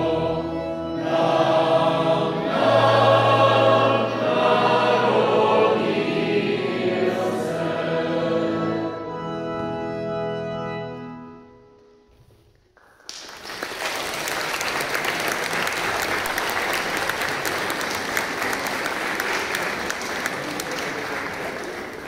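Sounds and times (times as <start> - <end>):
audience applauding: 12.8 - 22.0.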